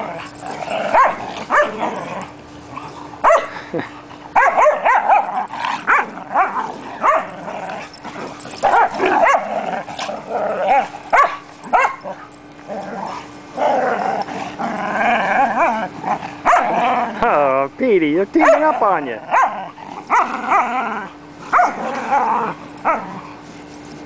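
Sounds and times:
dogs barking: 0.0 - 2.3, 3.2 - 12.4, 15.5 - 17.0, 18.4 - 20.7, 21.4 - 23.2
dogs growling: 0.0 - 17.5, 18.4 - 23.8.

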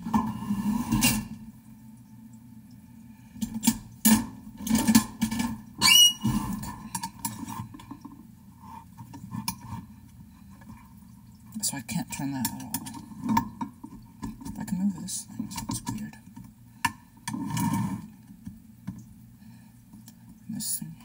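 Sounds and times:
brief squeak: 5.8 - 6.3.

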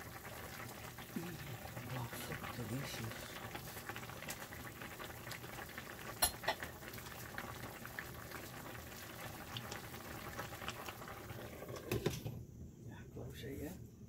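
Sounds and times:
soup boiling and bubbling: 0.0 - 12.4.

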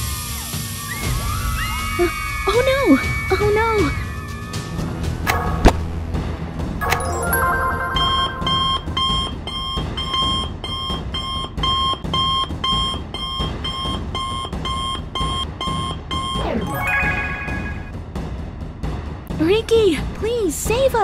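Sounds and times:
electronic alarm beeping: 6.8 - 17.9.

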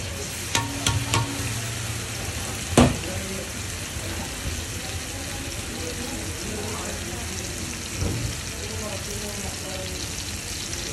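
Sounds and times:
egg frying on griddle: 0.0 - 10.9
metal spatula clanking on pan: 0.4 - 1.9.

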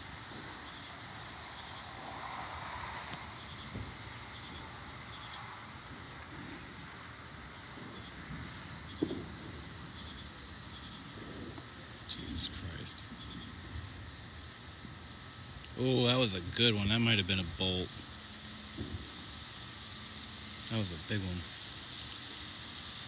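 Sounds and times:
low noisy background: 0.0 - 23.0
faint chirps: 2.9 - 14.6.

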